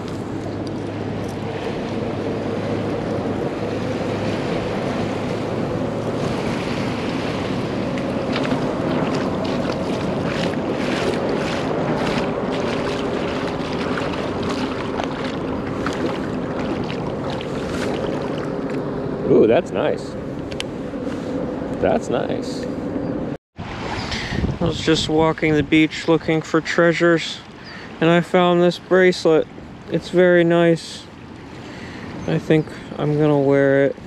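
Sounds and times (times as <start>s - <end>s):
small waves lapping: 0.0s - 19.2s, 23.6s - 25.2s, 25.8s - 34.0s
wind buffeting microphone: 0.0s - 26.4s.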